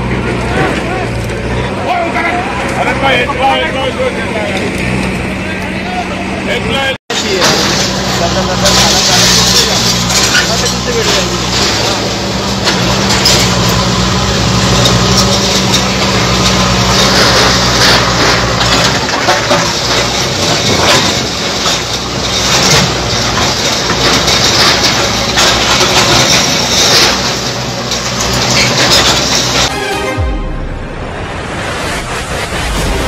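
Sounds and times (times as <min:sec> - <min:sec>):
diesel engines running: 0:00.0 - 0:33.0
falling rubble crashing: 0:07.1 - 0:29.7.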